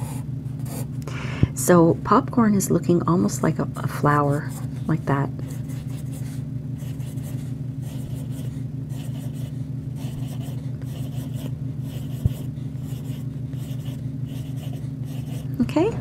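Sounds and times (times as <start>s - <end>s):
pencil scratching on paper: 0.0s - 0.9s, 5.5s - 15.5s
steady low hum: 0.0s - 16.0s.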